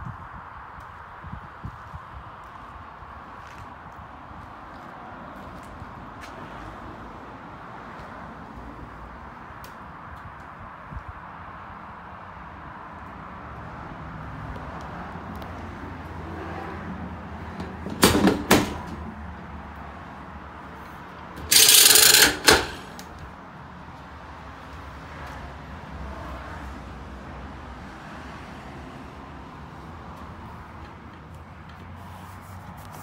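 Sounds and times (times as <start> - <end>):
metal bars clanking: 21.4 - 23.1
metal rattle: 21.4 - 23.1.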